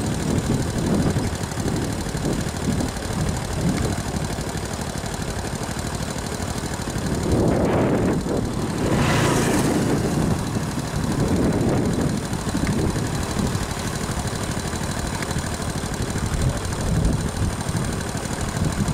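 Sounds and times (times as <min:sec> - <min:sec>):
motorbike engine idling: 0:00.0 - 0:18.9.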